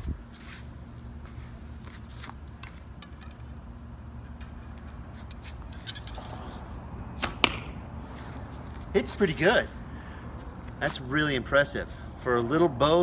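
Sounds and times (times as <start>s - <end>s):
steady low hum: 0.0s - 13.0s
arrow clicks: 7.2s - 7.7s.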